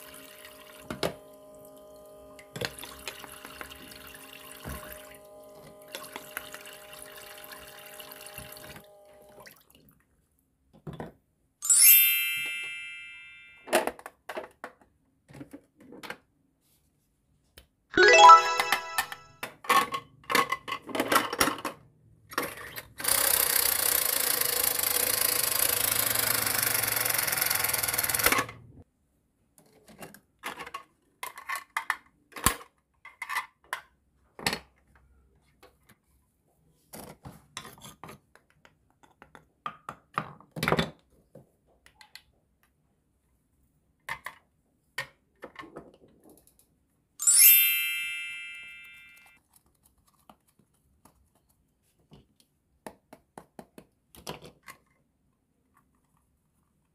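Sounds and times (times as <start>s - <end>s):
ringing chime: 11.6s - 13.7s, 18.0s - 19.3s, 47.2s - 49.4s.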